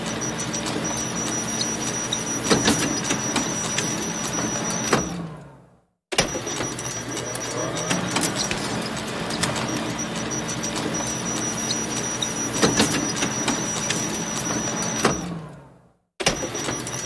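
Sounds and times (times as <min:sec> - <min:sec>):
photocopier whirring: 0:00.0 - 0:05.2, 0:06.2 - 0:15.4
photocopier clacks: 0:06.5 - 0:14.9.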